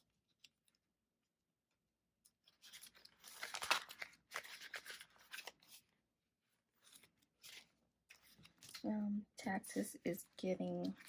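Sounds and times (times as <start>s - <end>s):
banknotes and plastic rustling: 2.4s - 6.0s, 10.0s - 11.0s.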